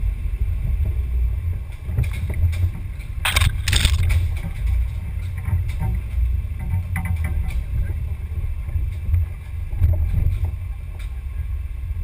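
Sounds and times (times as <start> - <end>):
crunching scrapes: 3.2 - 4.4.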